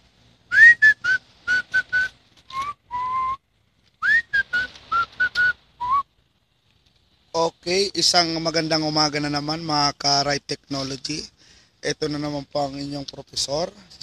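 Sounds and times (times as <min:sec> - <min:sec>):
person whistling a tune: 0:00.5 - 0:03.4, 0:04.0 - 0:06.0.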